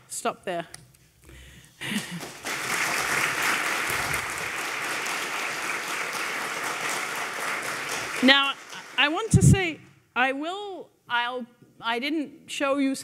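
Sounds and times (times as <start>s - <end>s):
audience applauding: 1.8s - 9.6s
speaker talking: 8.2s - 9.8s.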